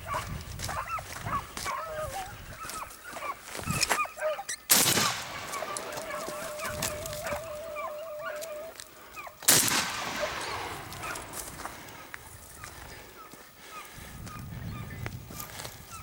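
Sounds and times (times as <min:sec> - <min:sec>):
hounds yelping: 0:00.0 - 0:15.0
shotgun shots with echo: 0:04.7 - 0:07.4, 0:09.5 - 0:12.1.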